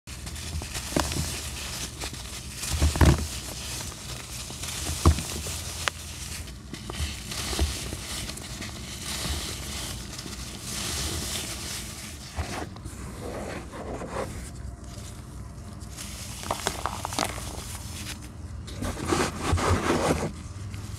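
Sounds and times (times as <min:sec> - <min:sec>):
falling grains hissing: 0:16.3 - 0:17.8
sand crumbled between gloved hands: 0:16.4 - 0:17.8.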